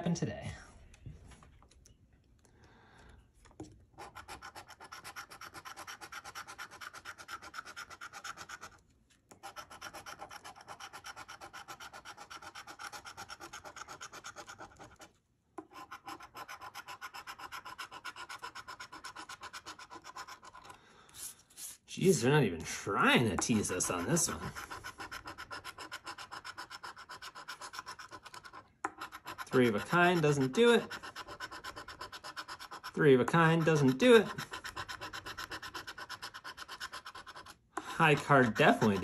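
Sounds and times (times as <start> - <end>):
coin scraping scratch-off ticket: 23.5 - 39.0.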